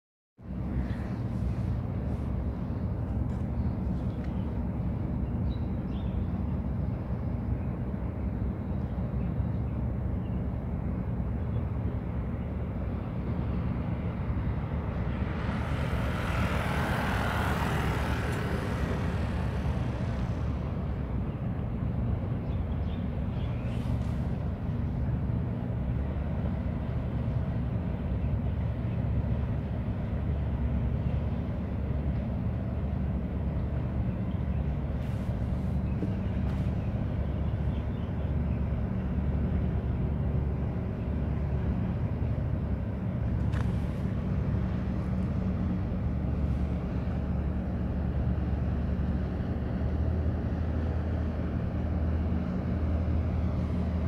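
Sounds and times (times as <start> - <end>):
low engine rumble: 0.4 - 54.0
broad hissing rush: 14.9 - 21.2.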